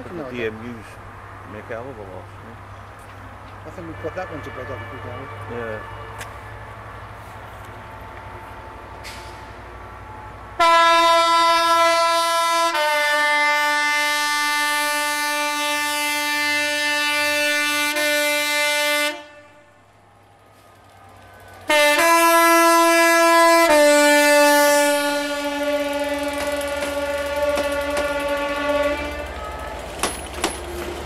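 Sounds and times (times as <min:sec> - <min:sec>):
two-tone locomotive horn: 0:03.7 - 0:06.9, 0:10.6 - 0:19.8, 0:21.6 - 0:30.0.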